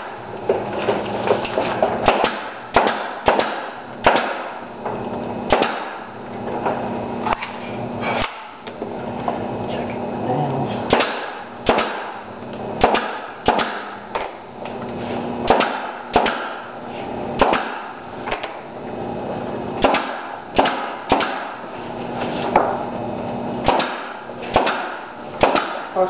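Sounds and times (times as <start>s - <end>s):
nail gun firing into wood: 2.0s - 4.6s, 5.5s - 6.1s, 8.2s - 8.6s, 10.9s - 12.2s, 12.8s - 14.4s, 15.4s - 16.7s, 17.4s - 18.6s, 19.8s - 21.6s, 23.6s - 26.0s.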